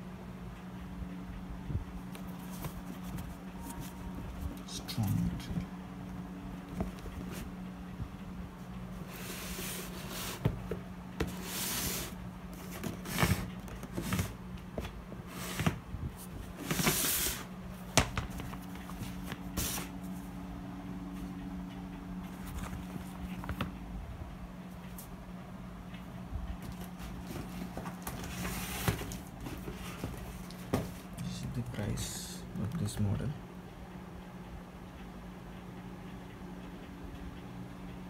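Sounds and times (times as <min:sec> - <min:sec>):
steady low hum: 0:00.0 - 0:38.0
handling sneakers rustling: 0:02.1 - 0:05.1.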